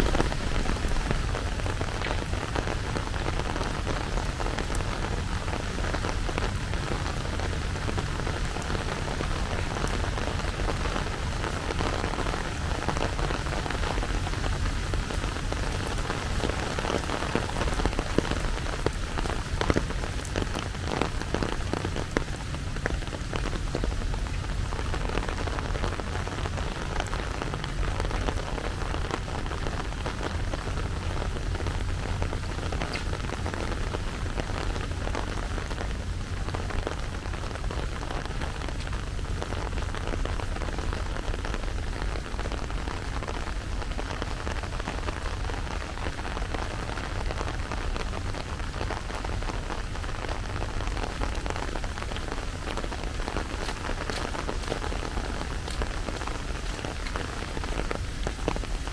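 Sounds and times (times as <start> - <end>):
close raindrops ticking: 0.0 - 58.9
rain falling: 0.0 - 58.9.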